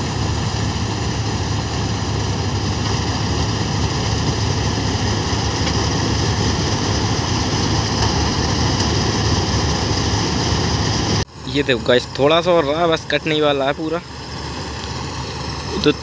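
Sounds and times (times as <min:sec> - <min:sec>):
combine harvester engine drone: 0:00.0 - 0:16.0.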